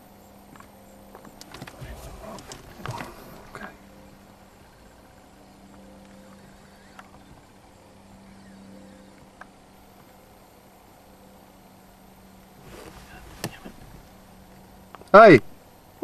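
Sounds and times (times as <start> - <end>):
low steady hum: 0.0 - 16.0
faint clicks: 0.5 - 3.7.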